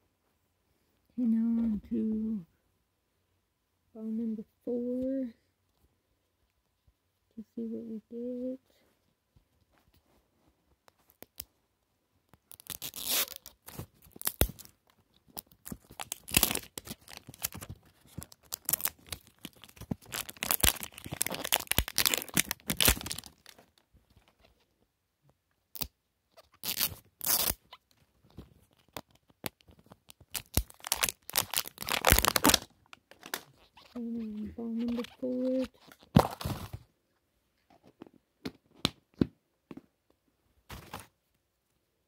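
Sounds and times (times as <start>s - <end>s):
plastic wrap crinkling and tearing: 12.4s - 23.8s, 26.6s - 27.7s, 28.6s - 34.0s.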